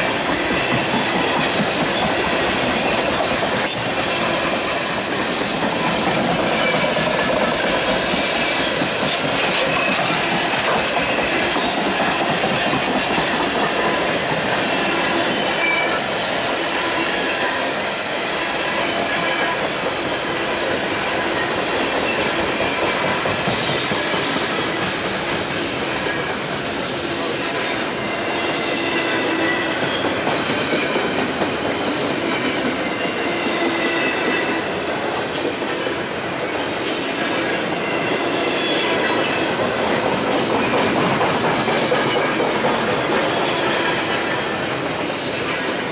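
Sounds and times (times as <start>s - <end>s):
train wheels rumbling on rail: 0.0s - 45.9s
high-pitched wheel squeals: 26.8s - 30.7s.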